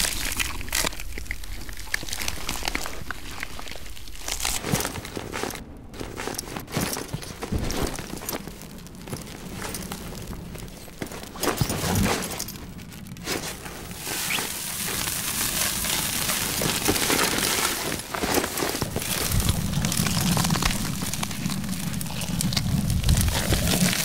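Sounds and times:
crackles clicks and crumpling: 0.0s - 24.0s
dense crackling hiss: 0.0s - 24.0s.

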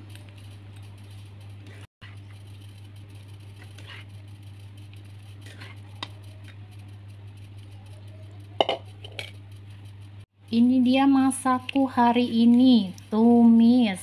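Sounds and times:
steady low hum: 0.0s - 14.0s
utensil clinking and scraping cookware: 8.6s - 9.4s.

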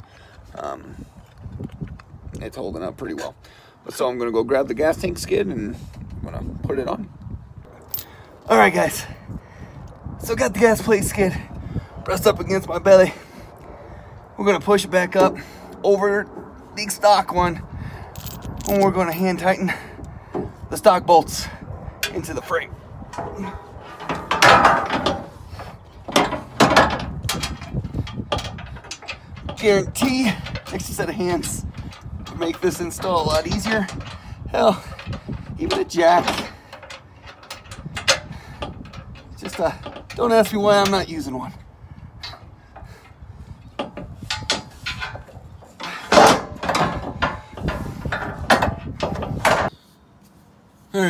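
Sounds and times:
metal clanks: 22.0s - 22.5s, 23.1s - 41.0s, 42.2s - 49.7s
metal plate scraping and rattling: 23.1s - 41.0s, 43.8s - 49.7s.

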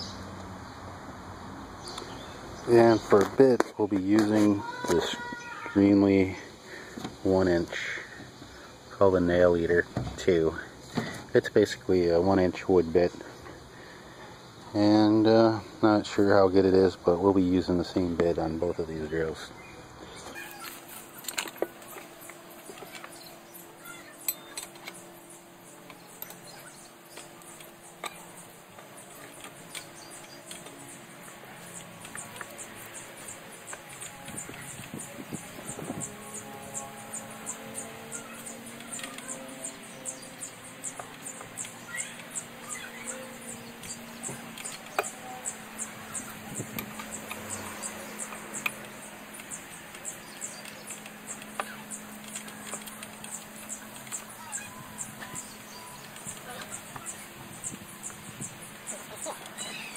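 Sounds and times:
faint steady hum: 0.0s - 59.9s
insect chirping: 19.2s - 59.9s.

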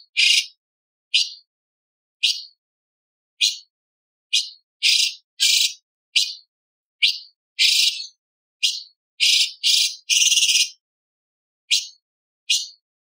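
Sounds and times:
bird chirping and rasping: 0.1s - 1.5s, 2.2s - 2.6s, 3.4s - 3.7s, 4.3s - 10.8s, 11.7s - 12.8s.

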